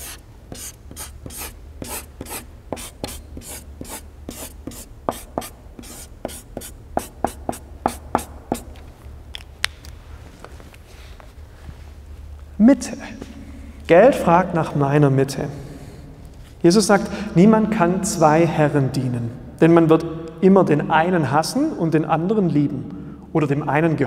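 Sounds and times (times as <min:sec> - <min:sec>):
pen scratching strokes: 0:00.0 - 0:08.7.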